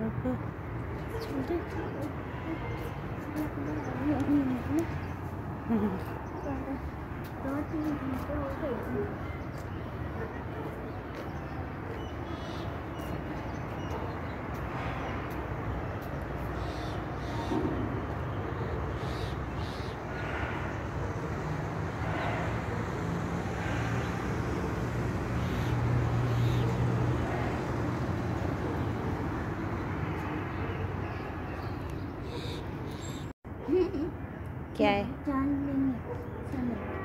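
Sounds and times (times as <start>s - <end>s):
distant traffic rumble: 0.0s - 37.0s.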